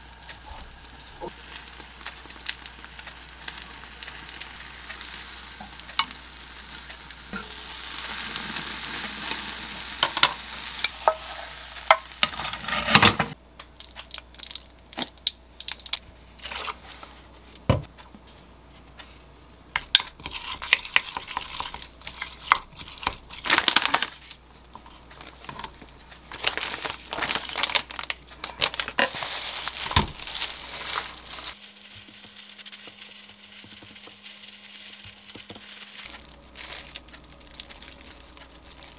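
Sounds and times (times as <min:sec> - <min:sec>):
egg sizzling in a pan: 0:00.0 - 0:13.0, 0:19.8 - 0:24.2, 0:28.8 - 0:38.9
plastic gloves crinkling: 0:00.1 - 0:13.0, 0:13.8 - 0:17.6, 0:20.1 - 0:38.9.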